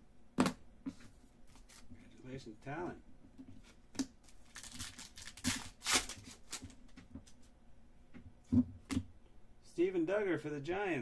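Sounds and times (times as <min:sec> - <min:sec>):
plastic wrapper crinkling: 0:04.2 - 0:06.8.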